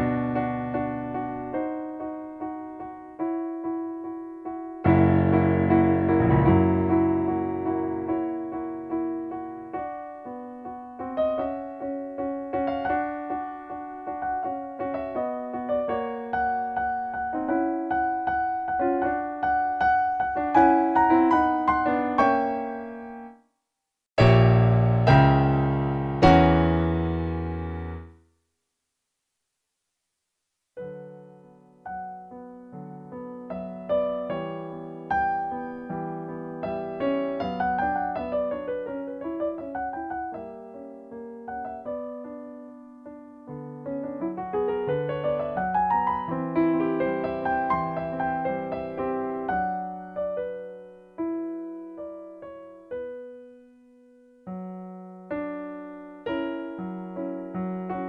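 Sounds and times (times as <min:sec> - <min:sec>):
slow piano music: 0:00.0 - 0:23.4, 0:24.2 - 0:28.2, 0:30.8 - 0:58.0.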